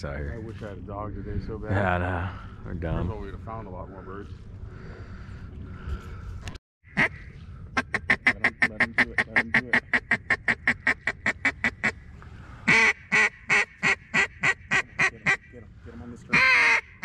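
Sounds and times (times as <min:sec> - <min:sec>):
duck call quacks: 0:06.9 - 0:12.0, 0:12.7 - 0:15.5, 0:16.3 - 0:17.0.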